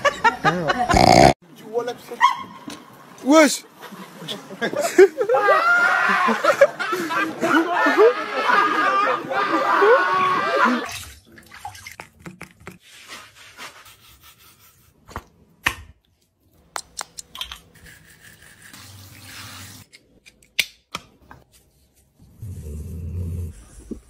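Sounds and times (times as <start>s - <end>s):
shower water running: 18.6s - 19.9s.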